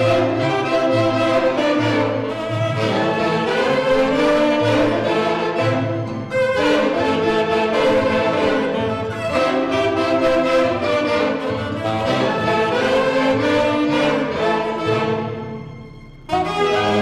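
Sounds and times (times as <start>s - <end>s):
saxophones and strings playing a tune: 0.0s - 17.0s.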